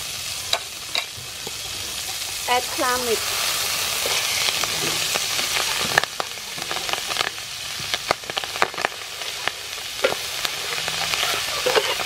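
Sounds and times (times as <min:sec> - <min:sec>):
clam meat sizzling in oil: 0:00.0 - 0:12.0
metal spatula scraping pan: 0:02.0 - 0:05.8, 0:10.0 - 0:12.0.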